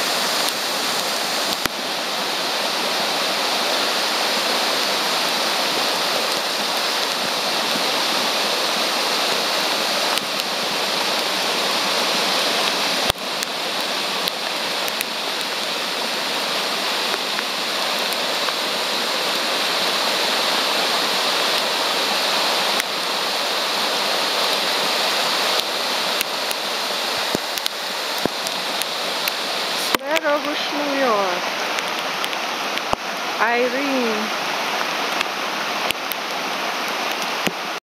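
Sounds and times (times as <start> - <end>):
floodwater rushing across road: 0.0 - 37.8
heavy rain: 0.0 - 37.8.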